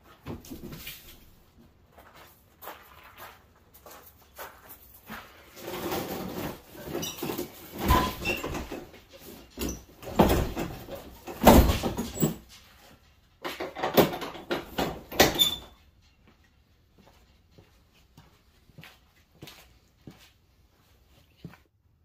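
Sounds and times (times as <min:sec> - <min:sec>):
metal door banging and clanking: 0:07.1 - 0:08.9, 0:09.5 - 0:12.6, 0:13.5 - 0:15.7.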